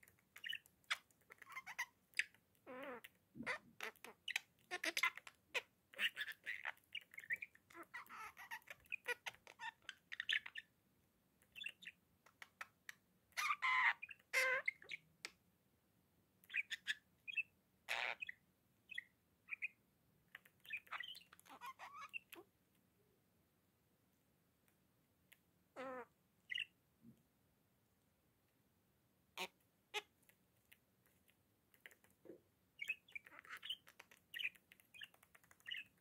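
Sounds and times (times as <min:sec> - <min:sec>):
budgerigar chattering: 0:00.4 - 0:10.7, 0:16.5 - 0:19.7, 0:20.4 - 0:22.4, 0:25.8 - 0:26.7, 0:32.8 - 0:35.9.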